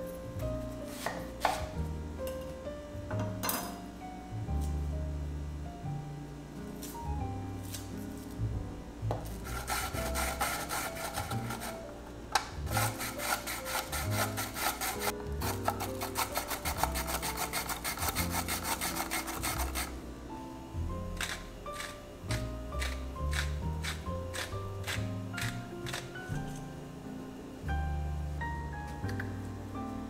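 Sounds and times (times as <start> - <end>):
soft background music: 0.0 - 30.0
onion scraping over slicer blade: 9.4 - 11.8, 12.7 - 20.0, 21.2 - 26.1.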